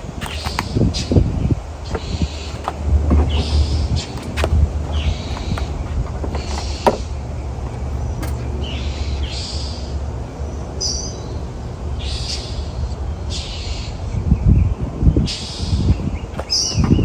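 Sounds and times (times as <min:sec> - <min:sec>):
steady low rumble: 0:00.0 - 0:17.0
bird calling hoarsely: 0:00.2 - 0:07.3, 0:08.0 - 0:10.0, 0:10.8 - 0:14.2
sharp knocks: 0:02.6 - 0:03.6, 0:06.1 - 0:07.1.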